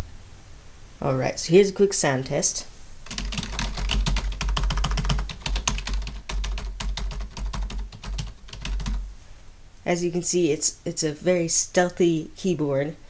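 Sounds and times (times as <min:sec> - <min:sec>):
keyboard typing clicks: 0:03.1 - 0:09.0.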